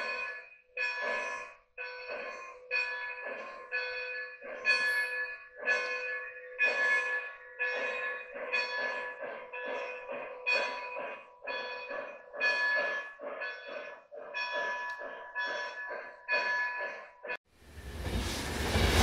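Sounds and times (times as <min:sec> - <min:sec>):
locomotive bell ringing: 0:00.0 - 0:17.4
rhythmic steam chuffing: 0:17.6 - 0:19.0.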